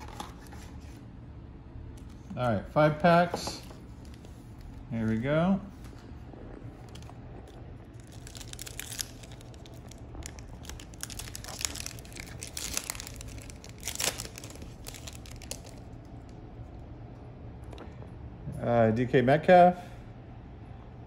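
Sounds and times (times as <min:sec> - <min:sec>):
foil wrapper crinkling: 0:06.8 - 0:16.3.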